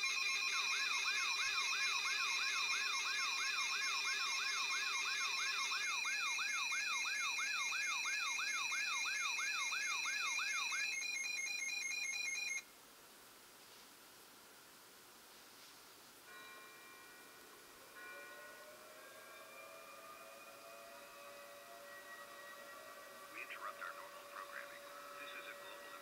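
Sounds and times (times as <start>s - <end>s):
electronic siren whooping: 0.0s - 12.6s, 18.1s - 26.0s
high pulsing alarm beeps: 0.0s - 12.6s, 18.3s - 26.0s.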